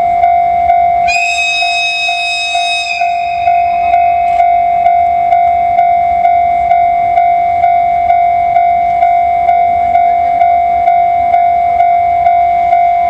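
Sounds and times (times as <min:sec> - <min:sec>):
locomotive rumble: 0:00.0 - 0:13.0
level crossing bell ringing: 0:01.2 - 0:06.6.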